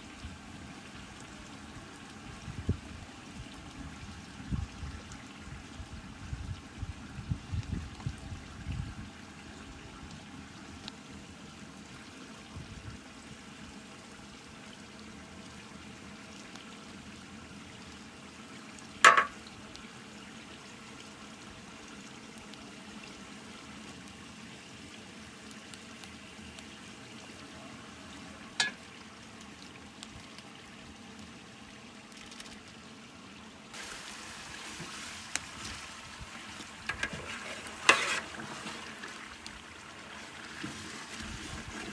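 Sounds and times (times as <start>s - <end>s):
food sizzling in pot: 33.8s - 35.4s, 36.9s - 38.7s
ladle stirring pot: 36.9s - 38.9s.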